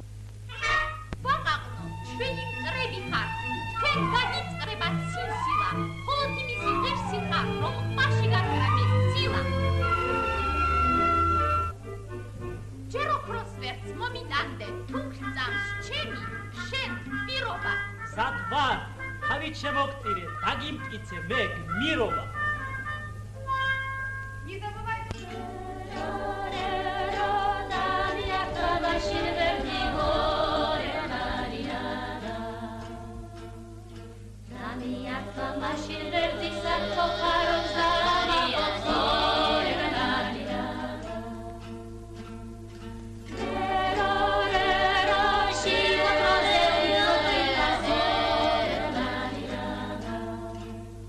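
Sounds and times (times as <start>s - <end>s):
steady low hum: 0.0s - 51.0s
film music: 0.5s - 51.0s
choir singing: 25.2s - 42.3s, 43.3s - 50.9s.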